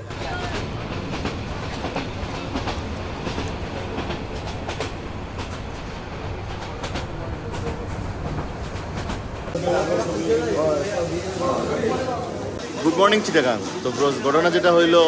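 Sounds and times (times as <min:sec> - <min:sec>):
train running at speed: 0:00.0 - 0:15.0
clacks and knocks: 0:00.1 - 0:09.6.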